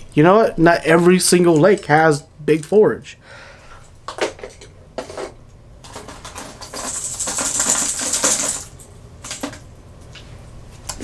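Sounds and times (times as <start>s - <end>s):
plastic lures clinking and rattling: 5.8s - 9.6s.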